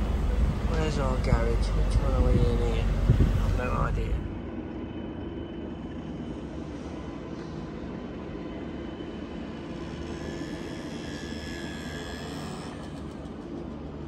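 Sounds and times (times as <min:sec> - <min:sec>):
vehicle engine and road noise: 0:00.0 - 0:04.4.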